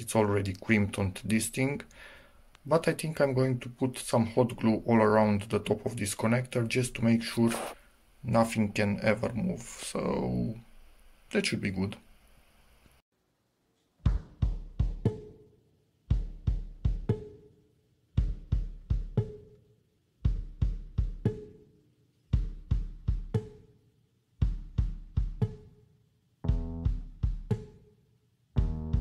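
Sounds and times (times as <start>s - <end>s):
background music with drum beat: 14.0s - 17.6s, 18.2s - 19.6s, 20.2s - 23.8s, 24.4s - 28.0s, 28.6s - 29.0s.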